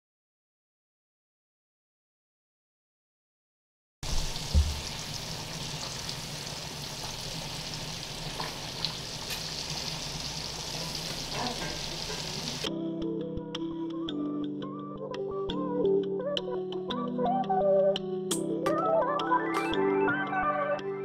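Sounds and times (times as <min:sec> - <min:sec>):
butter sizzling in a skillet: 0:04.0 - 0:12.7
low thump: 0:04.1 - 0:05.1
music: 0:11.4 - 0:21.0.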